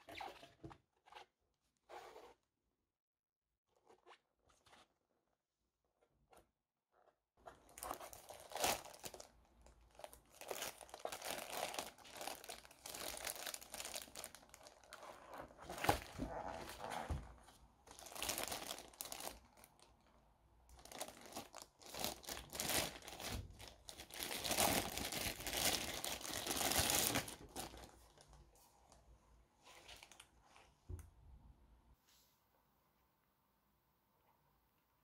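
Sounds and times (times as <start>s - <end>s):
plastic bag crinkling: 7.6s - 16.8s, 17.9s - 19.9s, 20.7s - 28.4s.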